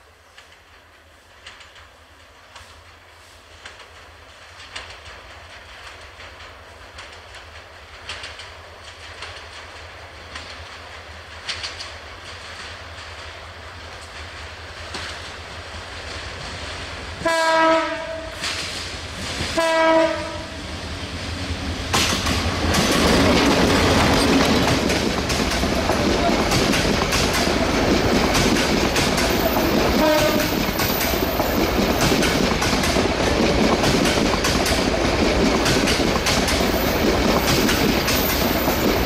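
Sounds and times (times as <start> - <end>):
diesel locomotive engine rumble: 10.3 - 39.0
locomotive horn blasts: 17.2 - 18.4, 19.6 - 20.6, 29.9 - 30.6
wheels clicking on rails: 21.9 - 39.0.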